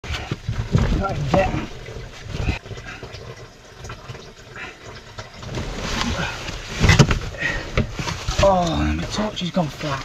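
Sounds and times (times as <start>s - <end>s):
rustling and shuffling in insulation: 0.0s - 3.4s, 5.2s - 10.0s.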